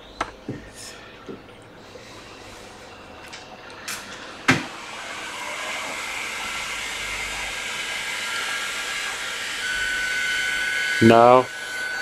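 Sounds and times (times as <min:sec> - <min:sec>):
electric blower hissing: 0:03.8 - 0:12.0.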